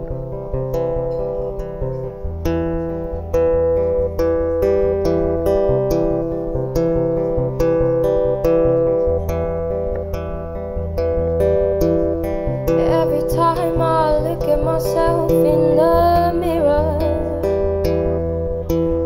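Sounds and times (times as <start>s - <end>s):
acoustic guitar picking: 0.0s - 19.0s
person singing: 12.8s - 17.5s.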